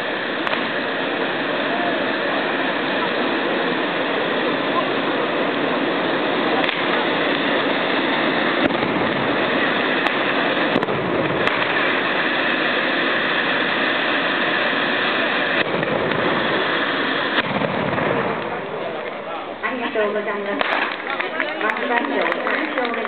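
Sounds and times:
fireworks hissing: 0.0 - 23.0
sharp pops: 0.1 - 2.0, 6.4 - 19.2, 20.6 - 21.3.

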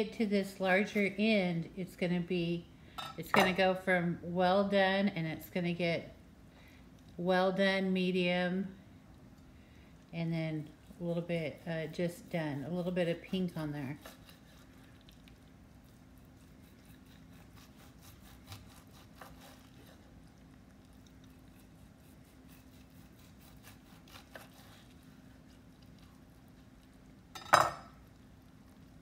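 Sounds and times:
faint steady hum: 0.0 - 29.0
knife sawing through meat: 13.2 - 14.8, 15.8 - 20.2, 21.2 - 25.7
knife clattering on wooden board: 27.4 - 27.9.

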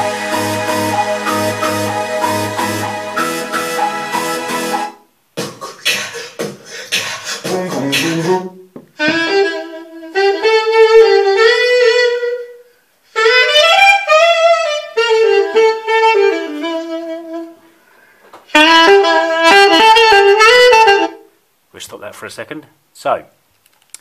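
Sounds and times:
music through speaker: 0.0 - 9.4.

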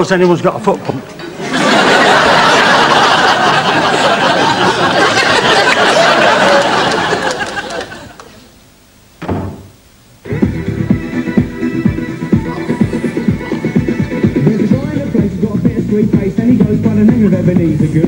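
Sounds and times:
audience laughing: 1.2 - 8.4
short knock: 9.2 - 9.8
electronic dance music: 10.2 - 18.0.

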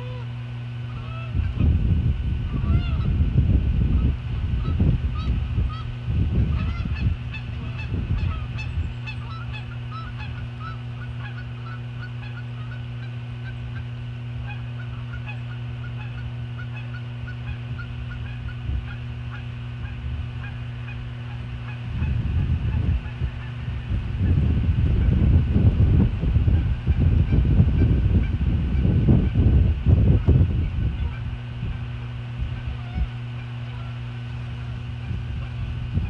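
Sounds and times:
low electrical hum: 0.0 - 36.0
low rumbling bursts: 0.0 - 36.0
eagles chirping alarm calls: 4.0 - 24.4.

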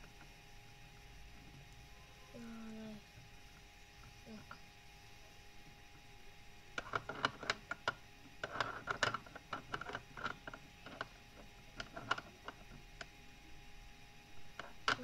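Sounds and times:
plastic puzzle pieces clicking: 6.8 - 11.1.

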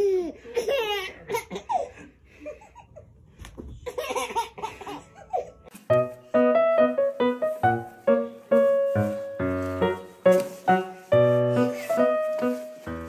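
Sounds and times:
piano music: 5.3 - 13.0.

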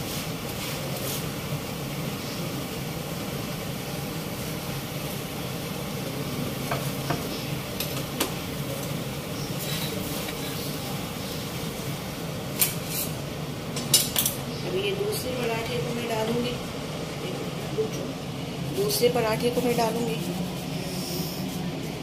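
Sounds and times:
flatbread sizzling on a pan: 0.0 - 14.2.

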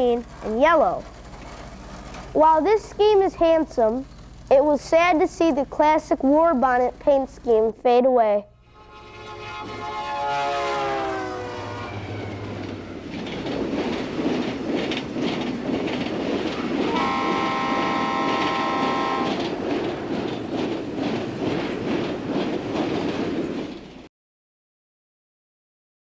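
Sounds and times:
toy train horn: 8.7 - 12.1, 16.9 - 19.4.

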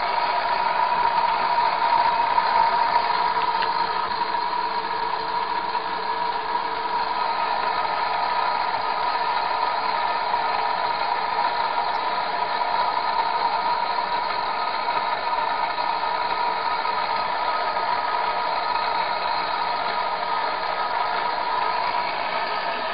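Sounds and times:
electric motor whine: 0.0 - 22.9
hiss: 7.0 - 22.9.

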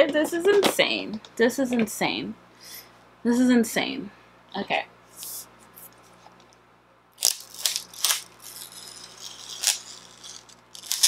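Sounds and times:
plastic film crinkling: 7.2 - 11.0.

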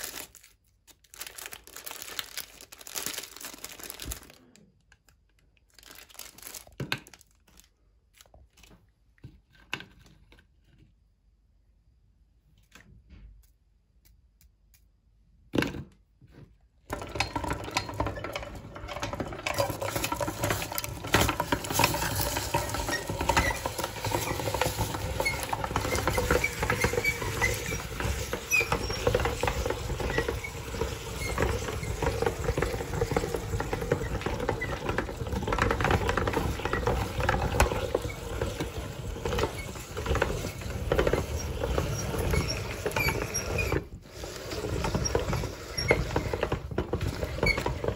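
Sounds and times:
meat grinder crushing ice: 16.9 - 47.9.

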